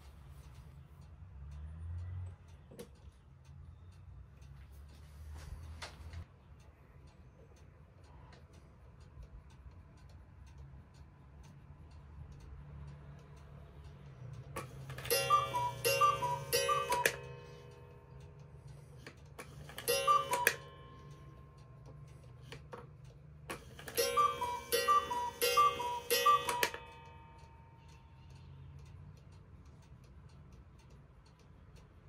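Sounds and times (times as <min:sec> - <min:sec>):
clock pendulum ticking: 0:00.0 - 0:32.0
cuckoo clock calls: 0:14.6 - 0:18.2, 0:19.4 - 0:22.6, 0:23.5 - 0:28.3.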